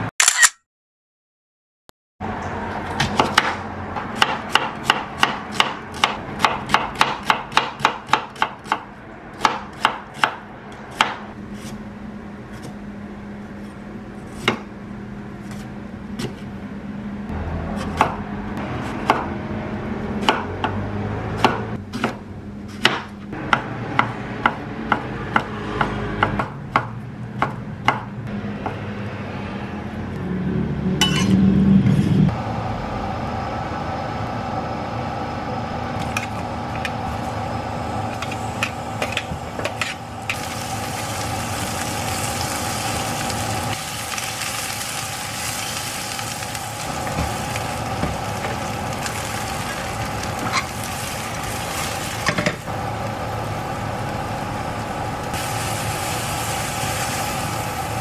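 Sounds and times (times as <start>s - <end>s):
knife chopping on wooden board: 3.0s - 11.8s, 14.3s - 14.7s, 15.4s - 16.5s, 17.8s - 18.2s, 18.8s - 19.3s, 21.4s - 28.8s.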